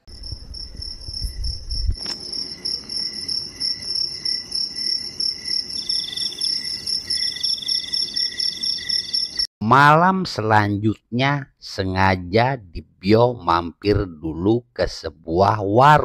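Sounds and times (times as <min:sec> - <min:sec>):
crickets chirping: 0:00.1 - 0:09.5
lower insect trill: 0:00.1 - 0:09.5
sharp click: 0:02.0 - 0:02.3.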